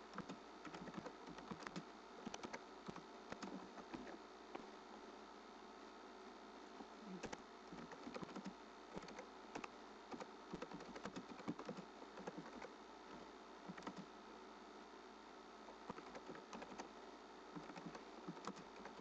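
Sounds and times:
typing on computer keyboard: 0.1 - 4.1, 7.2 - 12.7, 13.7 - 14.1, 15.8 - 16.9, 17.6 - 19.0.

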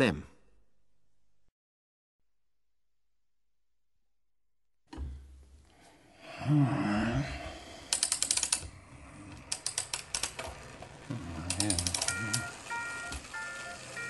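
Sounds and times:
rapid ratchet-like clicking: 7.8 - 13.8.

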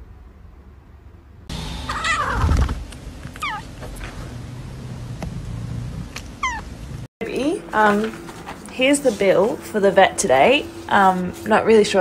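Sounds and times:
kitten mewing: 1.9 - 2.6, 3.4 - 3.6.

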